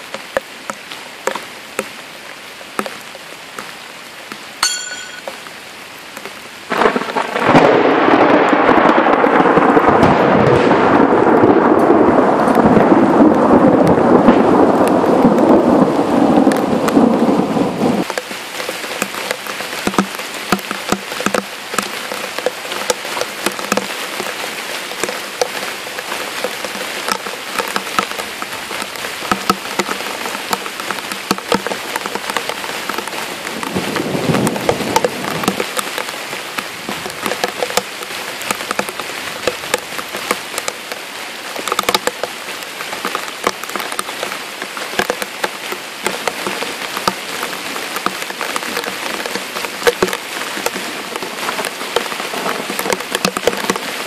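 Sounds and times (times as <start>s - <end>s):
sharp ticks and knocks: 0.0s - 2.0s, 2.6s - 3.7s, 4.3s - 5.5s, 18.0s - 41.0s, 41.6s - 42.4s, 43.0s - 53.9s
heavy rain falling: 0.0s - 54.0s.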